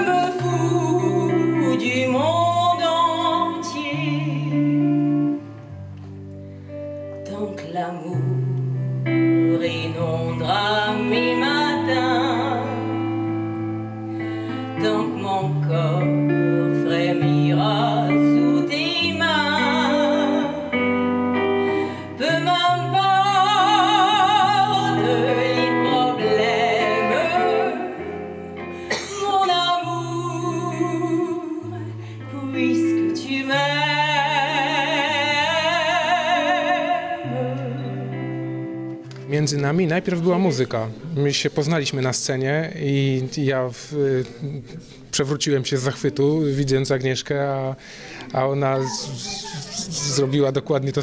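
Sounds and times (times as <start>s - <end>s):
woman singing with vibrato: 0.0s - 5.5s, 7.2s - 38.6s, 48.8s - 50.3s
guitar playing low notes: 0.0s - 51.0s.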